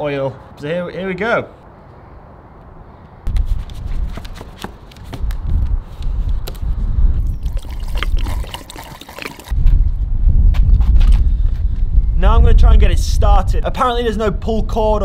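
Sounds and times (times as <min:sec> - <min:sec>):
liquid pouring into funnel: 0:07.2 - 0:09.5
liquid sloshing in plastic can: 0:07.2 - 0:09.5
steady low rumble: 0:09.5 - 0:14.8.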